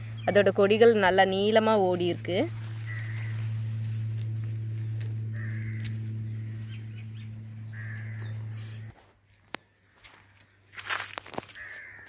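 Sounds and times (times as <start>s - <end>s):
steady low hum: 0.0s - 11.1s
crows cawing: 2.6s - 4.0s, 5.3s - 6.8s, 7.7s - 8.9s, 11.2s - 12.0s.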